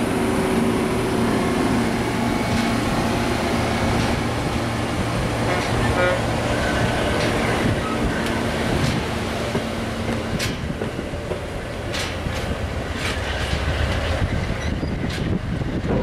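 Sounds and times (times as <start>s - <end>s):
train wheels rumbling on rail: 0.0s - 16.0s
wheels clicking over rail joints: 5.4s - 16.0s.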